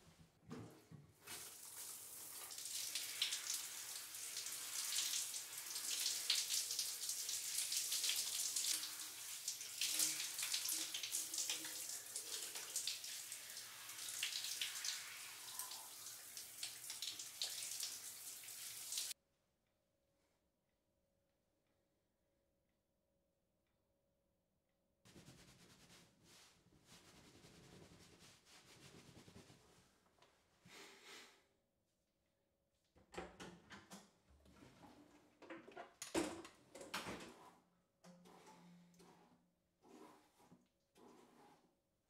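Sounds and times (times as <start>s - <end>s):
shower spray splashing: 1.2s - 19.2s.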